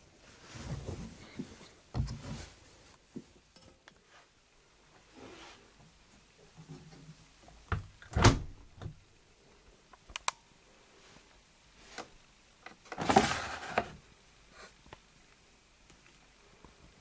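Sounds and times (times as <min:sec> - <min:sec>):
washing machine door thud: 0:07.7 - 0:08.6
sharp clicks: 0:10.0 - 0:10.4
detergent drawer scraping rattle: 0:12.9 - 0:14.0.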